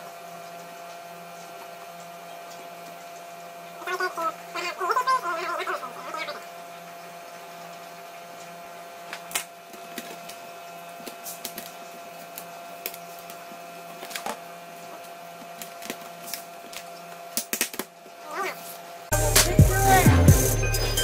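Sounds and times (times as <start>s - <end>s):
faint hum: 2.3s - 17.1s.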